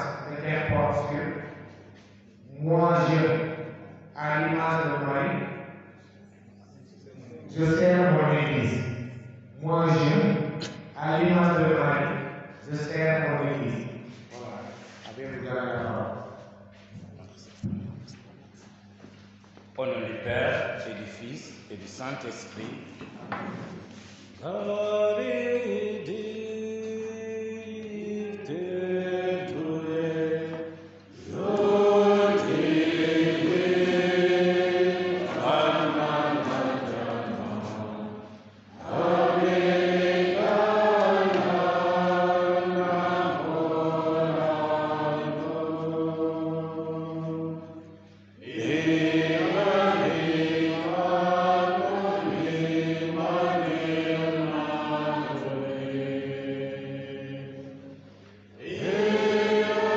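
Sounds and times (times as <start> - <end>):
voices singing religious chant: 0.0 - 2.0, 2.6 - 5.5, 24.0 - 59.9
steady low hum: 0.0 - 59.9.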